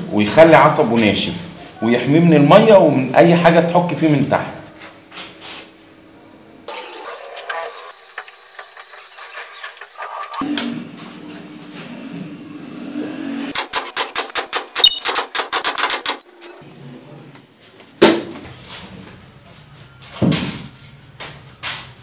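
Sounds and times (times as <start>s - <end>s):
nail gun shots: 13.5s - 16.2s.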